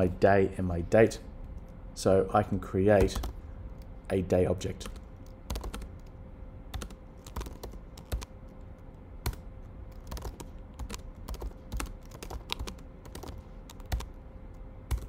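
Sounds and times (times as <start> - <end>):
faint steady hum: 0.0 - 15.0
computer keyboard typing: 3.0 - 3.9, 4.8 - 6.1, 6.7 - 8.3, 9.2 - 14.2.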